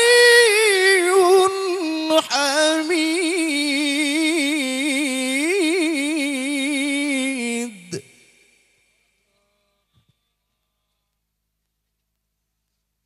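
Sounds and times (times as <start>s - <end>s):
man chanting into a microphone: 0.0s - 8.6s.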